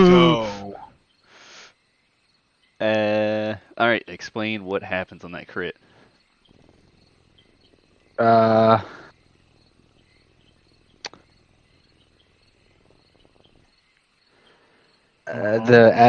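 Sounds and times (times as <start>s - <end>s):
man saying uhh: 0.0s - 0.8s, 8.2s - 9.0s, 15.3s - 16.0s
faint background hiss: 0.0s - 16.0s.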